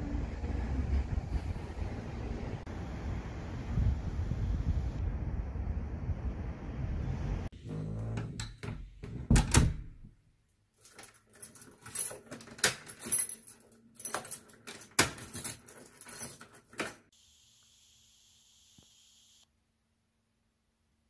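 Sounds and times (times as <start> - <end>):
door handle and lock clunks: 8.1 - 10.0
keys jingling and clicking: 10.8 - 17.0.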